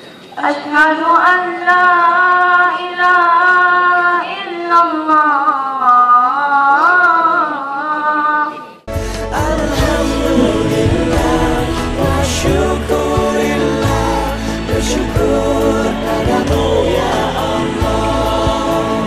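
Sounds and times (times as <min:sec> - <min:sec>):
music with deep bass and beat: 0:09.4 - 0:14.4
person chanting: 0:09.4 - 0:14.4.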